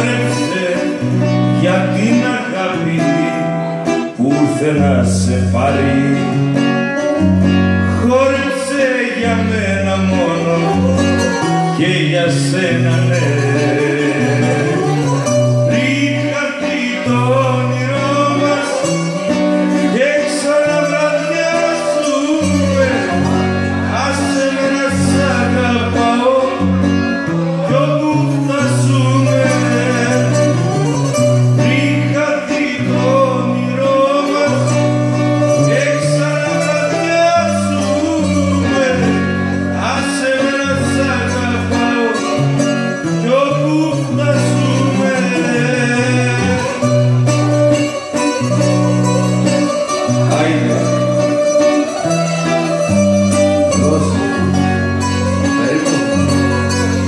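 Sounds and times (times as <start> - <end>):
bass line: 0.0 - 57.0
strummed long-necked lute: 0.0 - 57.0
violin melody: 44.1 - 57.0.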